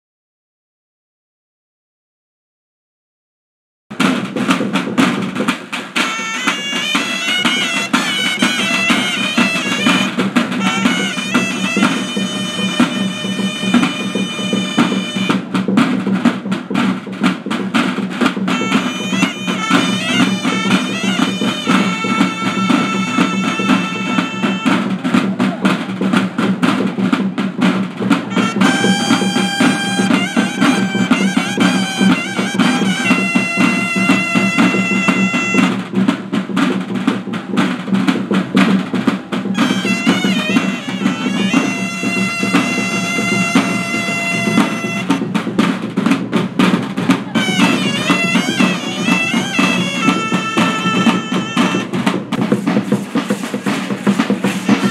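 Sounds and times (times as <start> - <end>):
bass drum beat: 3.9 - 54.9
snare drum beat: 3.9 - 54.9
wind instruments playing melody: 5.9 - 15.6, 18.3 - 25.2, 28.2 - 36.1, 39.4 - 45.5, 47.0 - 52.4, 53.1 - 54.9.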